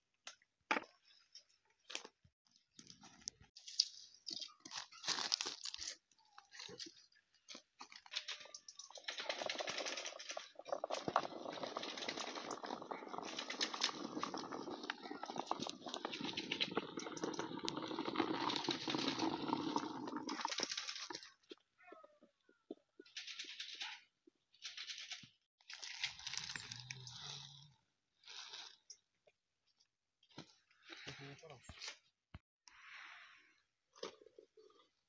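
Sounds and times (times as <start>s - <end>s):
olives pouring into plastic crate: 7.8s - 21.3s.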